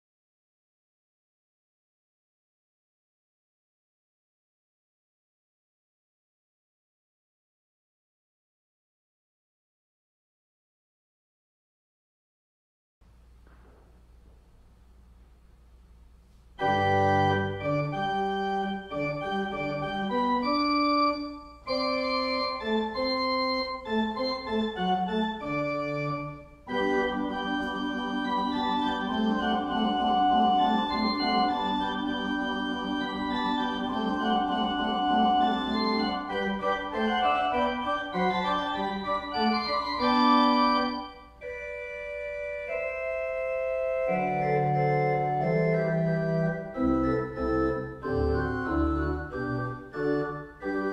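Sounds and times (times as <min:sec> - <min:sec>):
pipe organ playing chords: 0:16.6 - 0:50.9.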